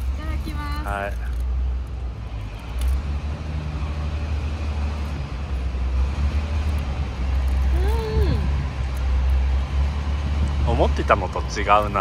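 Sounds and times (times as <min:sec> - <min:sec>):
city street traffic rumble: 0:00.0 - 0:12.0
person humming: 0:07.8 - 0:08.6.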